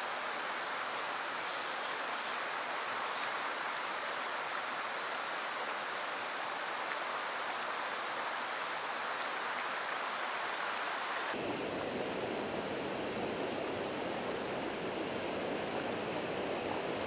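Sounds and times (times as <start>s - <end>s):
stream water rushing: 0.0s - 11.4s
faint click: 9.9s - 10.7s.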